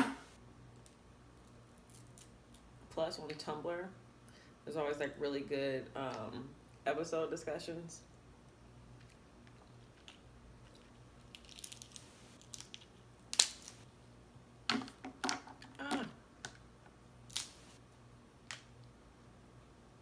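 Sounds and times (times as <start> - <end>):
crab shells cracking: 10.0 - 13.8, 17.3 - 17.6.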